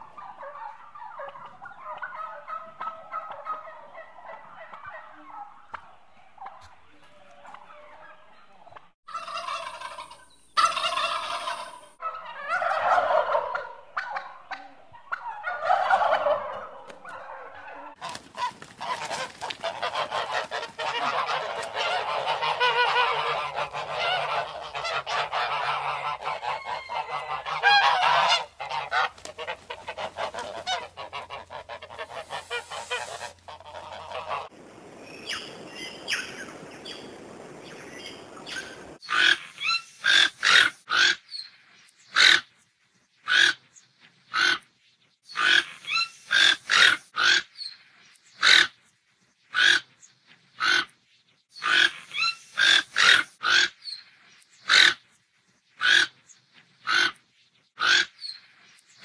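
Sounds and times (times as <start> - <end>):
geese honking: 0.0 - 5.6, 9.1 - 34.6, 51.6 - 53.7, 55.8 - 56.1, 57.8 - 58.1
wild turkeys calling: 0.0 - 41.5, 51.6 - 54.0.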